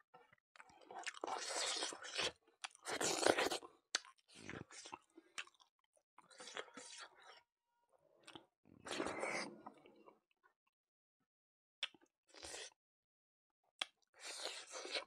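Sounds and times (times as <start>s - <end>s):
man chewing and lip smacking: 0.6s - 5.7s, 8.2s - 9.1s, 11.8s - 12.7s, 13.8s - 15.0s.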